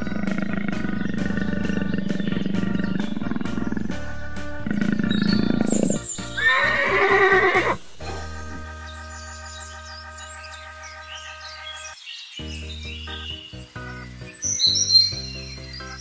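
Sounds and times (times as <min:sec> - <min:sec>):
background music: 0:00.0 - 0:16.0
horse whinnying: 0:05.8 - 0:07.8.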